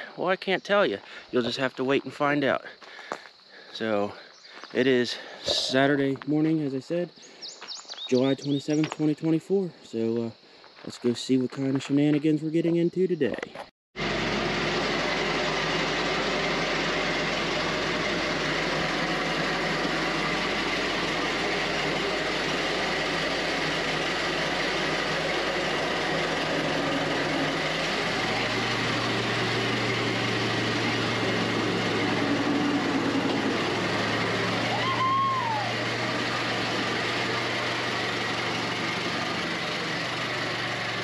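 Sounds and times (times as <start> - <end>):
car engine idling: 14.0 - 41.0
deep loud hum: 14.0 - 41.0.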